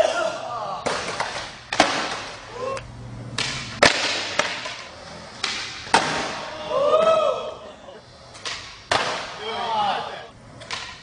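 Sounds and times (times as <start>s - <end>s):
skateboard wheels rolling on concrete: 3.3s - 11.0s.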